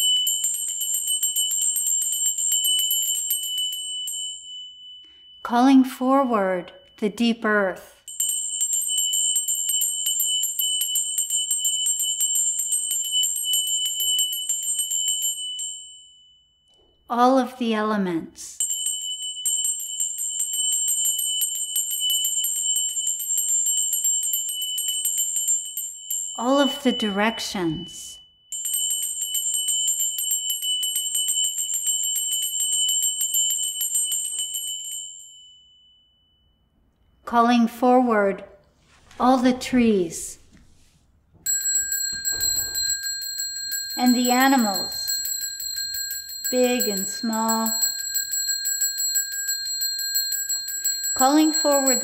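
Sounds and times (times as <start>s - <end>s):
small bell ringing rapidly: 0.0s - 5.4s, 8.0s - 16.4s, 18.6s - 27.5s, 28.4s - 36.4s, 41.4s - 52.0s.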